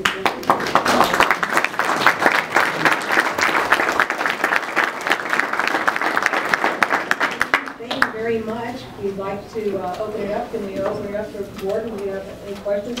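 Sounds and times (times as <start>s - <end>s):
people clapping: 0.0s - 8.2s.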